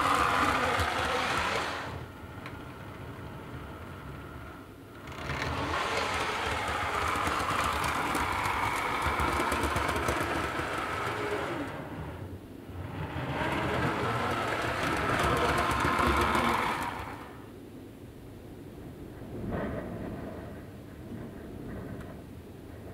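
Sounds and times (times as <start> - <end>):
small electric motor whirring: 0.0 - 12.2, 12.8 - 17.4
wheels clicking over rail joints: 0.0 - 17.5.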